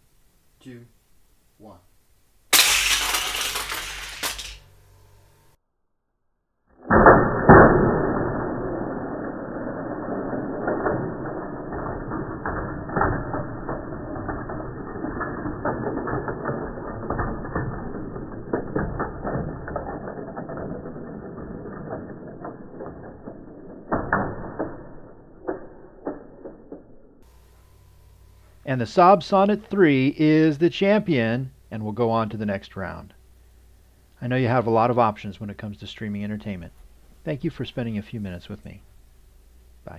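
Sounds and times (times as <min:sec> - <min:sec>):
toy cars clattering on plastic track: 0:02.5 - 0:04.7, 0:10.8 - 0:26.7.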